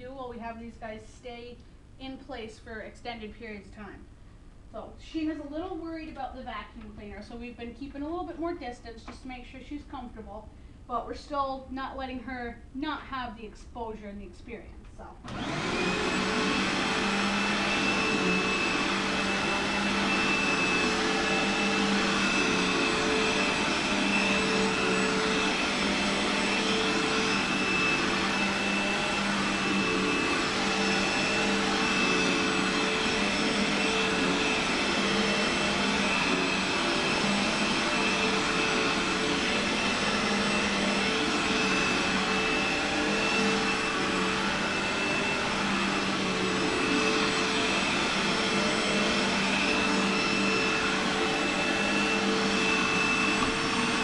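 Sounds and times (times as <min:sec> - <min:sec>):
vacuum cleaner running: 0:15.2 - 0:54.0.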